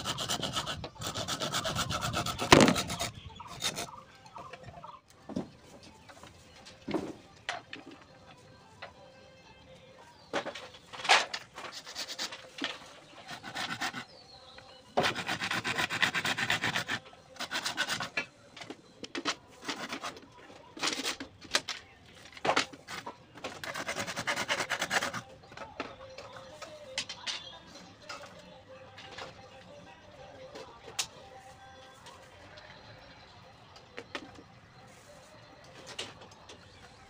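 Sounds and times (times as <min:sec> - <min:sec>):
knife scraping bamboo: 0:00.0 - 0:03.9, 0:11.6 - 0:12.6, 0:13.2 - 0:14.1, 0:15.0 - 0:18.2, 0:19.6 - 0:20.2, 0:22.8 - 0:25.2.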